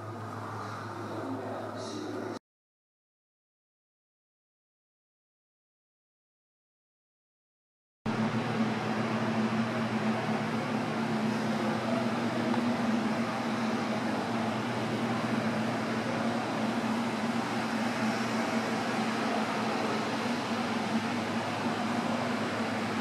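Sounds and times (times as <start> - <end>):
ventilation hum and air hiss: 0.0 - 2.4, 8.1 - 23.0.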